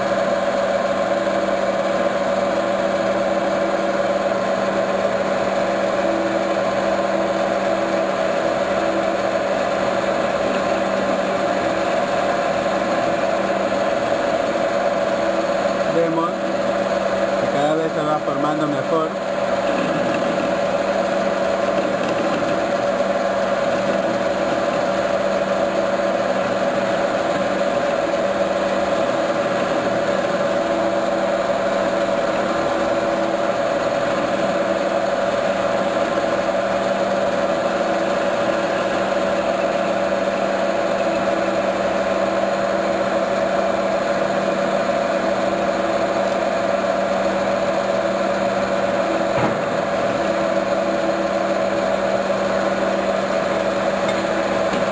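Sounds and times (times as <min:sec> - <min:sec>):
metal lathe humming and whining: 0:00.0 - 0:54.9
tool cutting metal workpiece: 0:04.4 - 0:45.2, 0:48.0 - 0:54.9.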